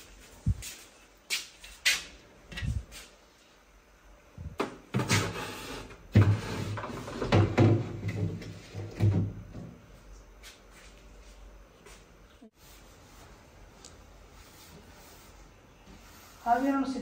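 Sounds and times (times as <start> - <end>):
shelf scraping and clunking: 4.6 - 9.8.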